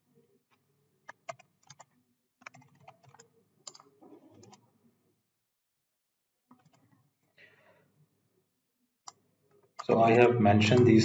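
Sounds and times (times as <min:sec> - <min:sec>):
keyboard and mouse clicking: 0:01.0 - 0:04.6, 0:06.5 - 0:06.9, 0:10.7 - 0:11.0.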